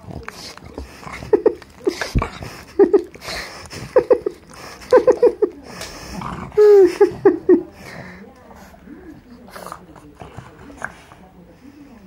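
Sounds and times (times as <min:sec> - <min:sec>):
dog breathing: 0:00.0 - 0:12.0
dog whimpering: 0:00.6 - 0:07.5.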